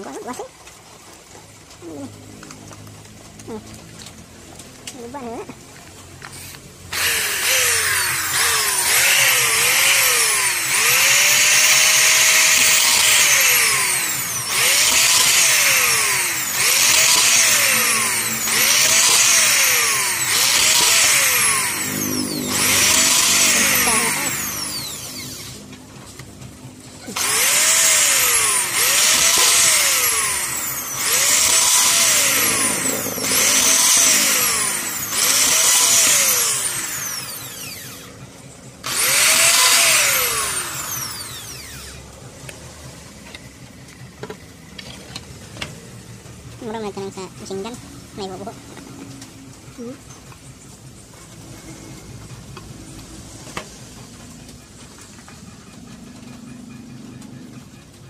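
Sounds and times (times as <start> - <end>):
electric drill whining: 6.2 - 25.8, 27.0 - 42.6.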